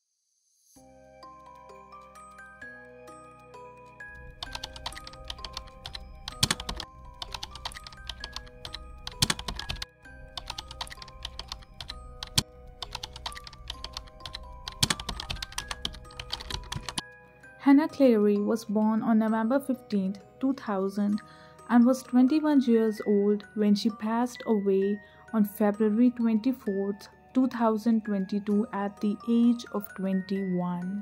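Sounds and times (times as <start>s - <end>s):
background music of held notes: 0.8s - 31.0s
keyboard typing clicks: 4.3s - 17.0s.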